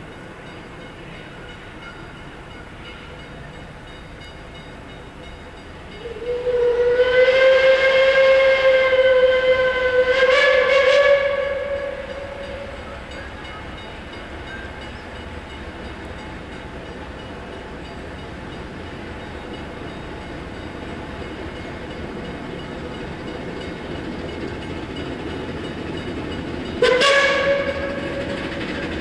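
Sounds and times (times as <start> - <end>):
steam locomotive whistle blast: 5.9 - 14.0, 26.8 - 29.0.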